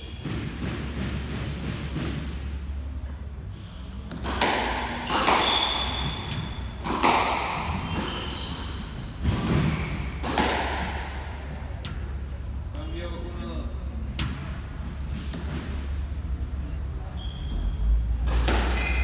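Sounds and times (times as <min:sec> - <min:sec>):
sneakers squeaking on wooden floor: 0:00.0 - 0:00.6, 0:04.9 - 0:10.4, 0:17.1 - 0:18.0, 0:18.7 - 0:19.0
squash ball hitting rackets and walls: 0:00.0 - 0:03.3, 0:04.0 - 0:12.7, 0:14.0 - 0:16.4, 0:17.5 - 0:19.0.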